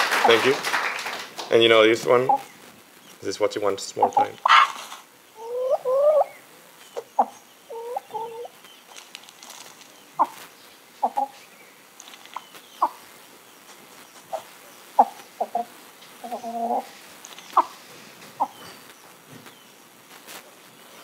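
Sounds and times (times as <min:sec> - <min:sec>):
chicken clucking: 0:02.2 - 0:02.5, 0:03.9 - 0:10.4, 0:11.0 - 0:11.4, 0:13.7 - 0:18.8.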